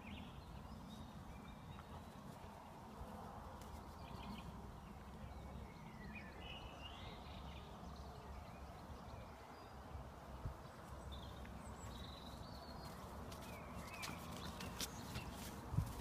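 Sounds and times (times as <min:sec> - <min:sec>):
bird chirping: 0:04.0 - 0:09.9, 0:10.6 - 0:15.6
wind rumble on microphone: 0:15.3 - 0:16.0.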